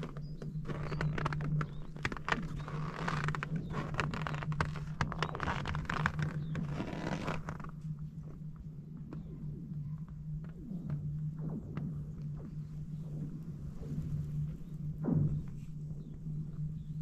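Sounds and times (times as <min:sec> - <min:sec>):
crunching on packed snow: 0:00.0 - 0:07.9
steady low hum: 0:00.0 - 0:17.0.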